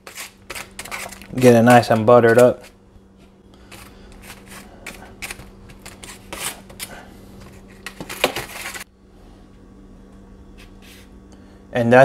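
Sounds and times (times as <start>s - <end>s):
knife scraping on crinkling foil: 0.0s - 2.8s, 3.6s - 8.9s.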